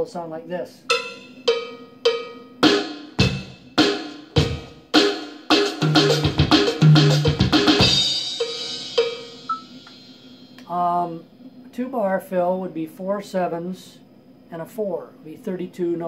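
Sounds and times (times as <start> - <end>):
electronic drum beats: 0.8 - 10.7
cymbal crash: 7.6 - 10.6.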